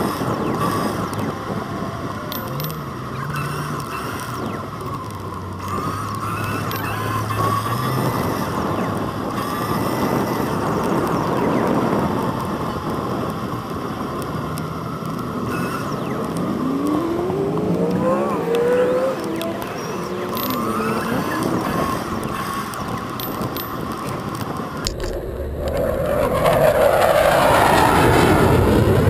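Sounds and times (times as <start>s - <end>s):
bicycle tyre noise: 0.0s - 29.0s
rising whine: 0.0s - 29.0s
wind rushing over microphone: 0.0s - 29.0s.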